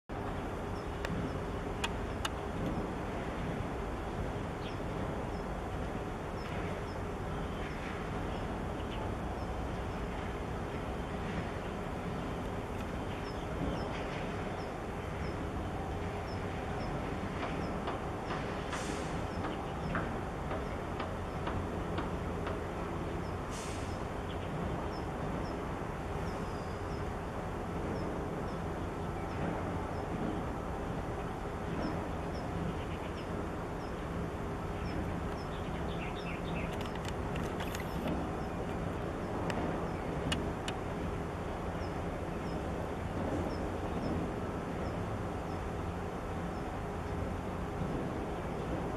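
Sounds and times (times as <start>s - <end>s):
faint steady hum: 0.1s - 18.6s
harbour rumble and hiss: 0.1s - 48.9s.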